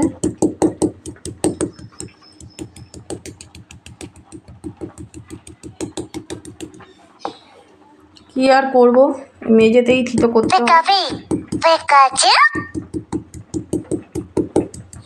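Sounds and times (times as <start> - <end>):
pounding on concrete floor: 0.0 - 6.9, 10.1 - 11.7, 12.5 - 15.0.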